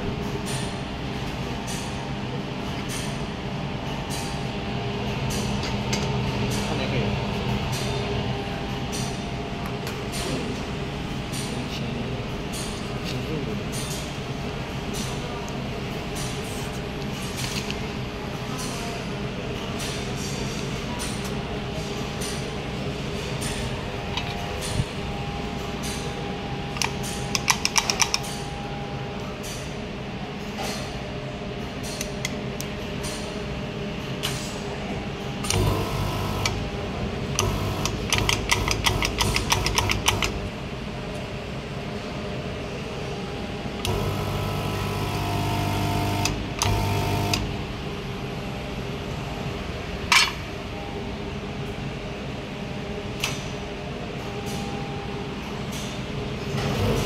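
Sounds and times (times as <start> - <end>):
machine humming: 35.4 - 40.9, 43.2 - 49.4
drive motor whirring: 43.9 - 47.5.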